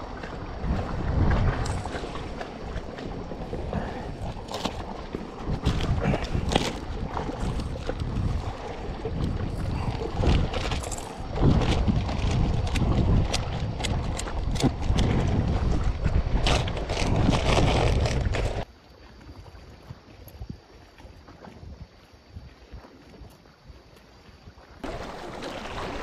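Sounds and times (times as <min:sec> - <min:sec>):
wind buffeting microphone: 0:00.0 - 0:18.7.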